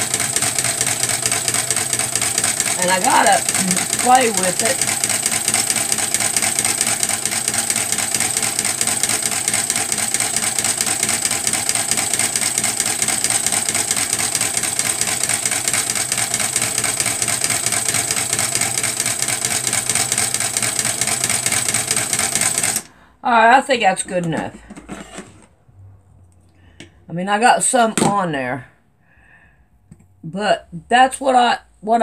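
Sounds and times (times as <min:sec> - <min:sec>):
sewing machine motor whine: 0:00.0 - 0:23.0.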